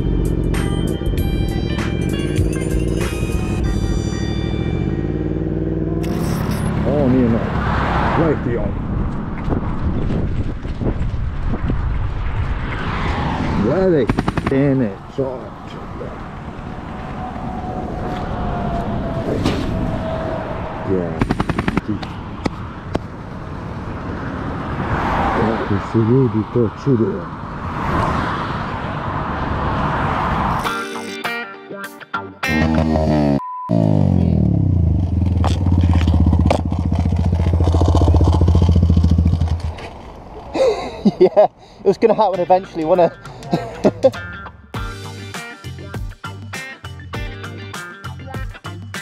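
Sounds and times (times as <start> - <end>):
motorway traffic passing: 0.0 - 31.2, 32.4 - 49.0
wind noise: 8.6 - 14.4, 15.0 - 25.4.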